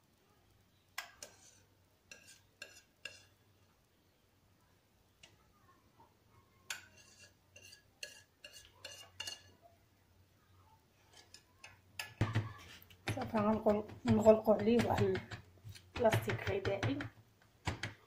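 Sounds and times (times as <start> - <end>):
metal spoon clinking and scraping: 1.0 - 3.4, 6.7 - 9.6, 11.0 - 16.4.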